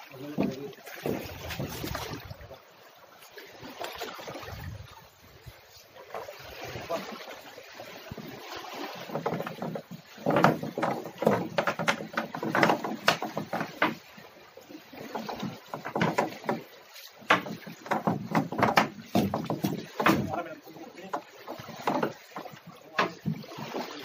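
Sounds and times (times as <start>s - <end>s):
water splashing: 0.0s - 24.0s
knocks against boat: 0.2s - 2.2s, 8.9s - 14.1s, 15.1s - 23.6s.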